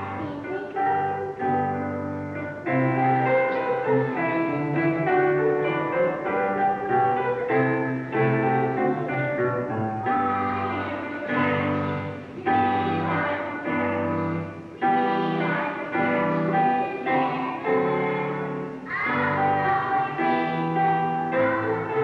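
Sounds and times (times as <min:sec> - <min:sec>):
children's choir singing: 0:00.0 - 0:22.0
instrumental accompaniment: 0:00.0 - 0:22.0.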